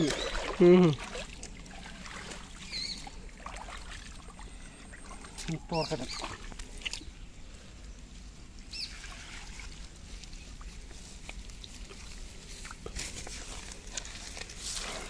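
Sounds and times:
faint rustling of fishing net: 0.0s - 15.0s.

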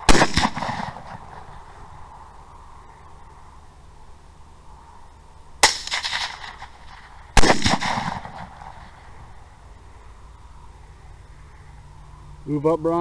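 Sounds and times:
suppressed rifle shots with echo: 0.0s - 1.8s, 5.6s - 9.2s.

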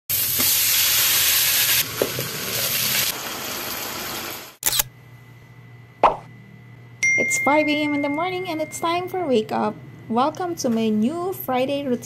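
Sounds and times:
chicken sizzling in hot oil: 0.1s - 4.6s.

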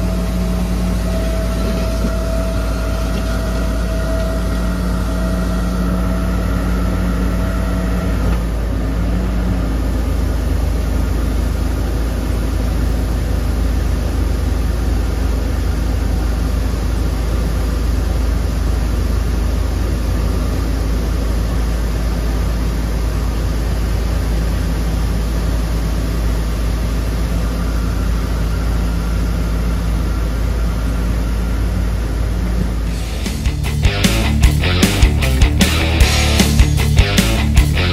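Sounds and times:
high steady tone: 0.0s - 8.2s
excavator diesel engine running: 0.0s - 37.9s.

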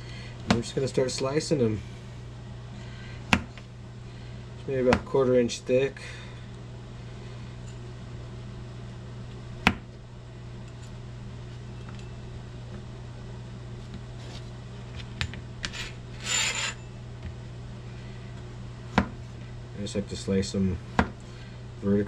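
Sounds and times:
steady low hum: 0.0s - 22.0s
knife scraping rasp: 15.6s - 16.9s.

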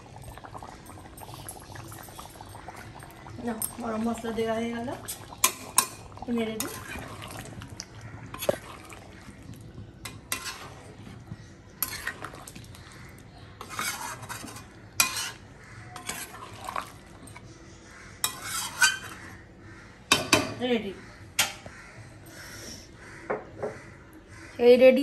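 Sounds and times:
spoon scraping and clinking in pot: 10.0s - 11.2s, 11.8s - 12.6s, 13.6s - 17.5s, 18.2s - 19.3s.

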